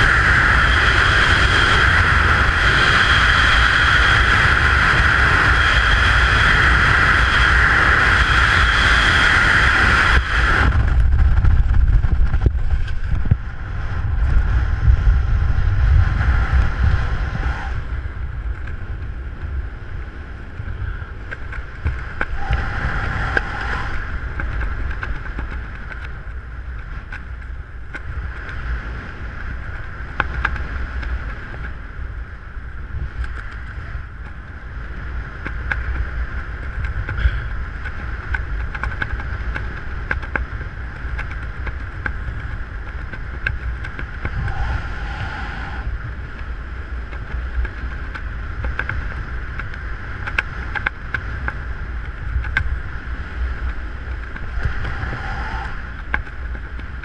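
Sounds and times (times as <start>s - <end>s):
wind buffeting microphone: 0.0s - 57.0s
small clicks: 35.3s - 44.5s, 46.2s - 57.0s.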